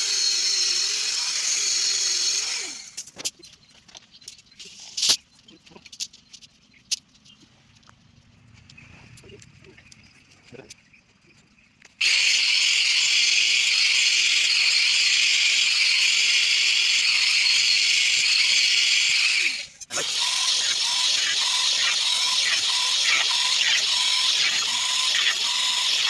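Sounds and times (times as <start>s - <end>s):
angle grinder cutting steel: 0.0s - 3.0s, 12.0s - 26.0s.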